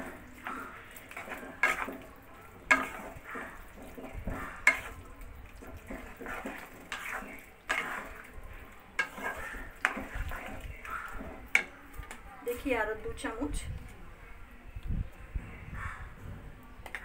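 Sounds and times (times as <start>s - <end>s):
spatula scraping in a wok: 0.0s - 11.8s.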